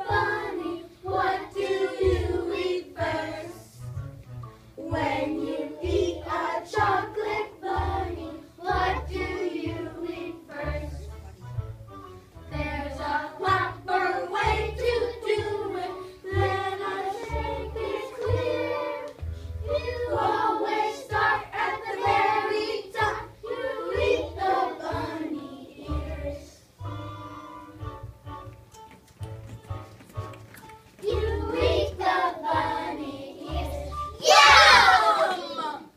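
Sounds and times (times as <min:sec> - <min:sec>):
children singing in unison: 0:00.0 - 0:03.6, 0:04.8 - 0:10.8, 0:13.0 - 0:26.6
instrumental accompaniment: 0:00.0 - 0:34.8.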